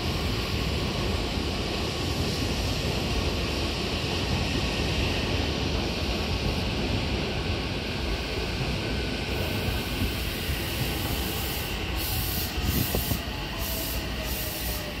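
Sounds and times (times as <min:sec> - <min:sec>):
train wheels rumbling: 0:00.0 - 0:15.0
train brake whine: 0:09.1 - 0:15.0.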